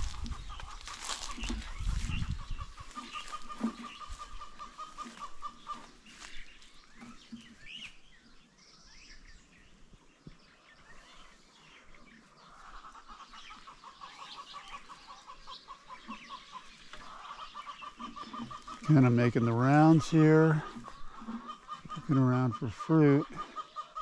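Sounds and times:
low rumbling: 0:00.0 - 0:04.4
chickens clucking: 0:00.0 - 0:08.0, 0:11.2 - 0:24.0
birds calling: 0:00.0 - 0:24.0.

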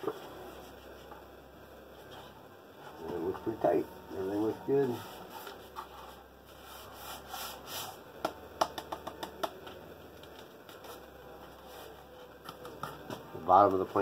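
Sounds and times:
foam rubbing against fingers: 0:05.0 - 0:08.1.

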